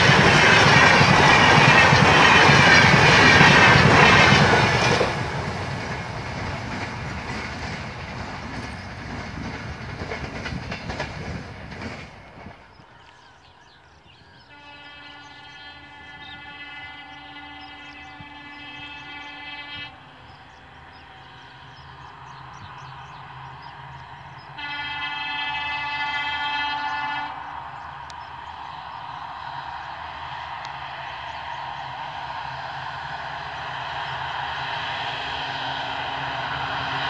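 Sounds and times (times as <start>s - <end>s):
train rumbling: 0.0s - 37.0s
locomotive horn blasts: 14.5s - 21.6s, 24.5s - 27.4s.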